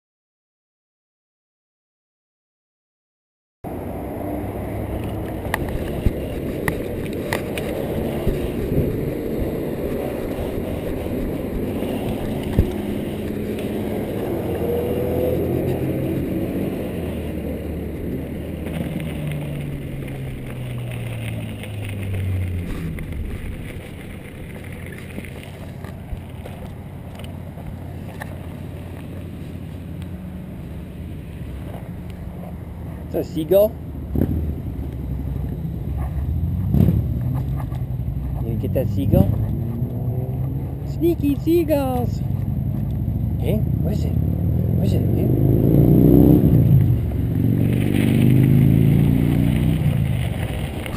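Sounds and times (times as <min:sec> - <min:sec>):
bike rolling rumble: 0:03.6 - 0:50.9
wind noise: 0:03.7 - 0:29.5.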